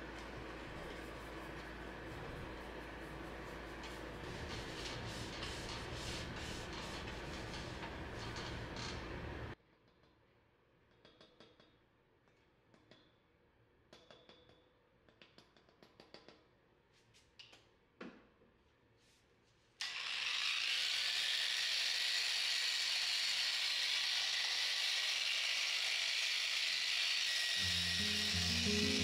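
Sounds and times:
electric polisher running: 19.8 - 29.0.

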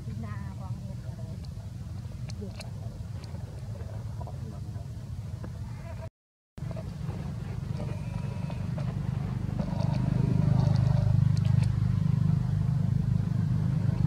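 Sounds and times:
motor engine humming: 6.6 - 14.0.

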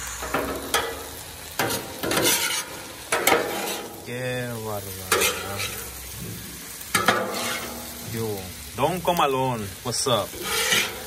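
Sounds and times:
food sizzling on griddle: 0.0 - 11.0
metal spatula scraping griddle: 0.2 - 4.1, 4.8 - 8.0, 10.2 - 11.0.

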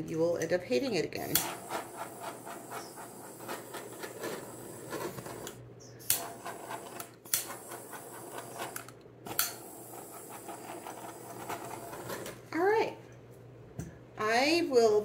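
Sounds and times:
butane torch hissing: 1.3 - 12.4.

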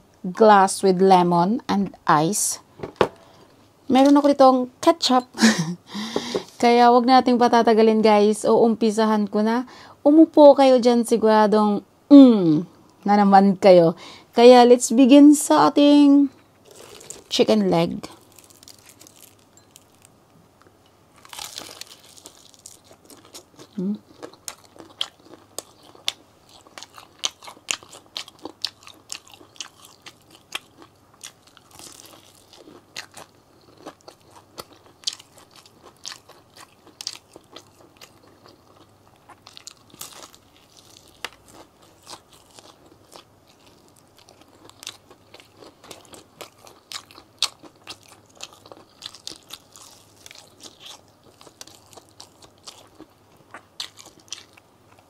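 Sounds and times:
chewing: 16.6 - 17.3, 21.2 - 55.0
crunching fried chicken: 16.6 - 20.1, 21.1 - 55.0.

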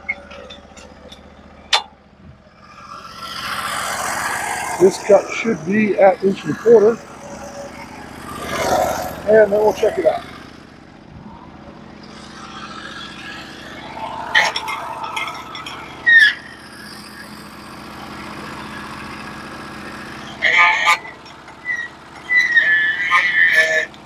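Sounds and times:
sharp clatters and squeaks: 0.0 - 10.9, 11.6 - 24.0
sawmill engine running: 0.0 - 24.0
band saw cutting log: 2.7 - 10.7.

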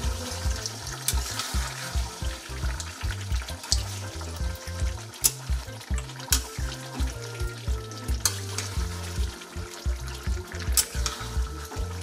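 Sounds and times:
chicken sizzling in a pan: 0.0 - 12.0
low background music: 0.0 - 12.0
spatula clicking against pan: 5.1 - 6.7
metal spatula scraping: 8.2 - 9.2, 10.8 - 11.9.

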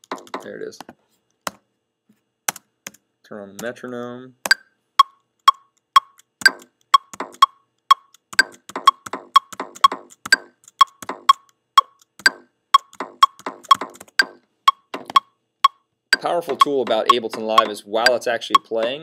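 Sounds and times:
metronome ticking: 4.5 - 19.0
electronic drum pattern: 6.4 - 7.5, 8.4 - 11.4, 12.2 - 15.2, 16.2 - 19.0.

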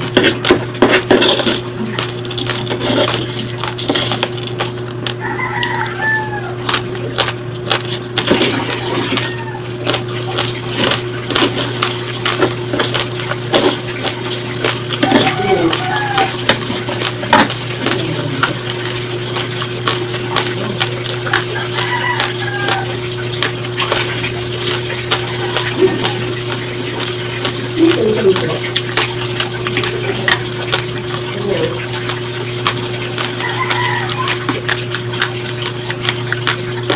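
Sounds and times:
crunching and chewing rice: 0.0 - 36.9
low electrical hum: 0.0 - 36.9
spoon scraping plate: 0.2 - 1.8.

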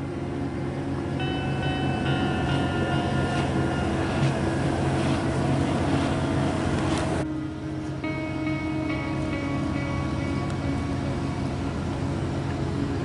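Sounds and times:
ship engines humming: 0.0 - 13.0.

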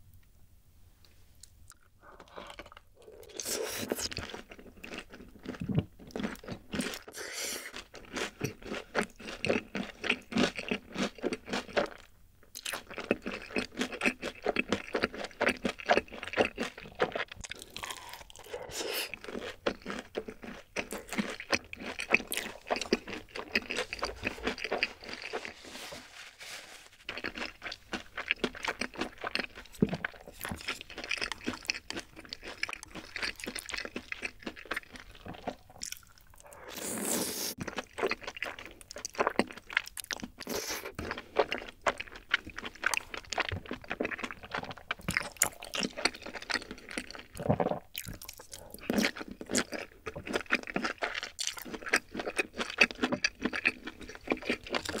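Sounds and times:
wet chewing and mouth smacks: 12.5 - 25.5, 27.1 - 55.0
noodle slurping: 17.9 - 19.5, 36.4 - 37.7.

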